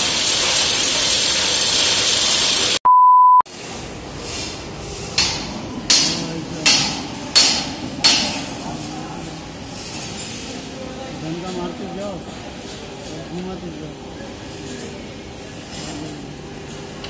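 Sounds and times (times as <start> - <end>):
pure beep tone: 2.8 - 3.4.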